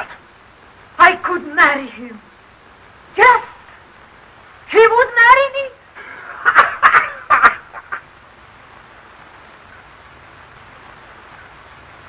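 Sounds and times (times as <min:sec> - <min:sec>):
old film soundtrack hiss: 0:00.0 - 0:12.0
hearty laughter: 0:06.0 - 0:08.1.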